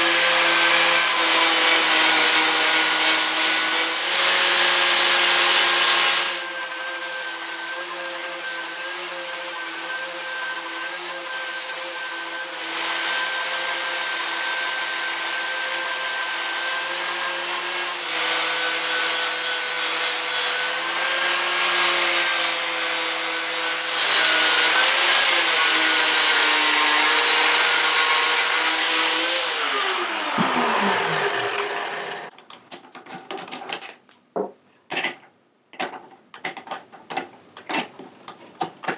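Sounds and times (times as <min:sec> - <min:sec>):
angle grinder stripping paint: 0:00.0 - 0:32.3
grinder winding down: 0:23.1 - 0:32.3
clicks and knocks of handling: 0:32.3 - 0:38.9.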